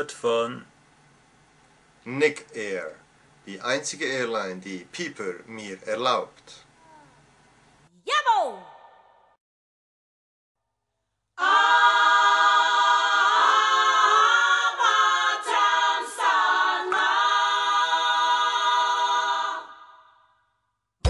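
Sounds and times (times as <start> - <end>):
voices singing a cappella chord: 11.4 - 20.3.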